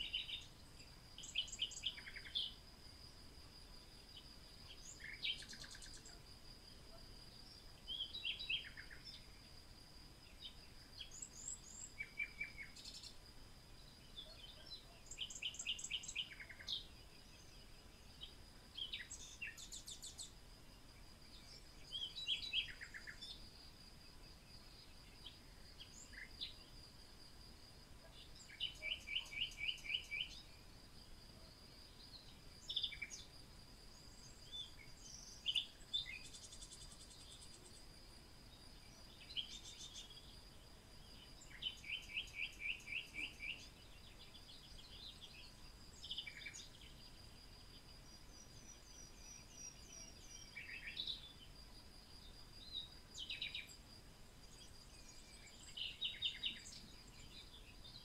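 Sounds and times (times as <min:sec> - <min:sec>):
faint hiss: 0:00.0 - 0:58.0
birds chirping and singing: 0:14.1 - 0:20.3, 0:28.1 - 0:30.5, 0:41.3 - 0:47.0, 0:54.5 - 0:58.0.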